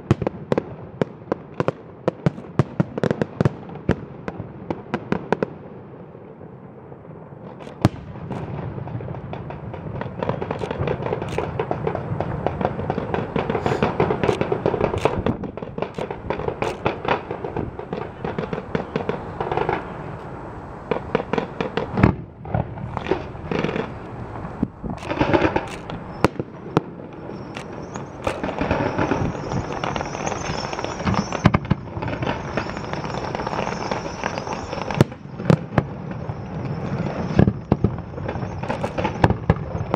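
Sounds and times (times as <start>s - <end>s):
fireworks bangs: 0.0s - 39.9s
fireworks crackling: 0.0s - 39.9s
high hiss: 13.3s - 15.2s, 27.2s - 35.4s.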